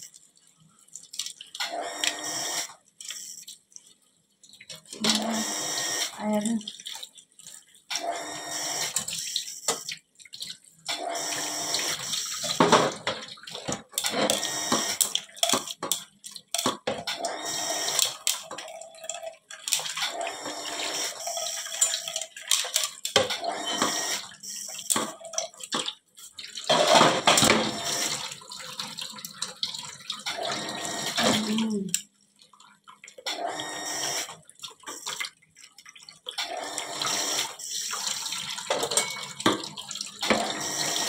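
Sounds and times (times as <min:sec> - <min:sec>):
tap water splashing into metal sink: 0:37.9 - 0:41.0.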